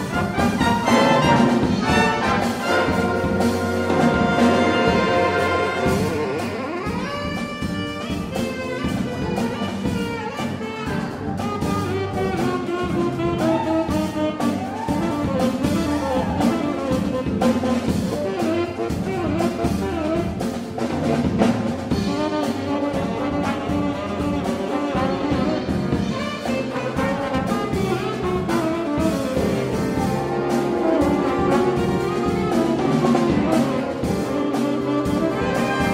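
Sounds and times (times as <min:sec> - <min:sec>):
brass section: 0:00.0 - 0:35.9
jazz big band playing: 0:00.0 - 0:35.9.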